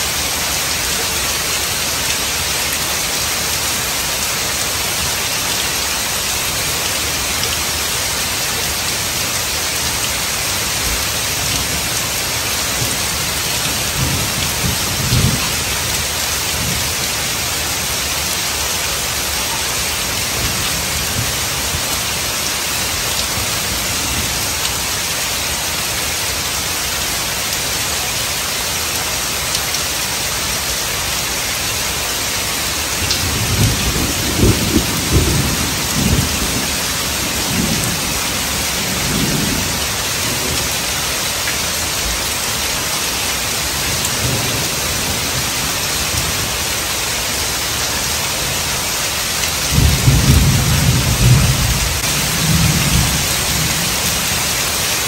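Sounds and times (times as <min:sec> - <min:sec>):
heavy rain on pavement: 0:00.0 - 0:55.0.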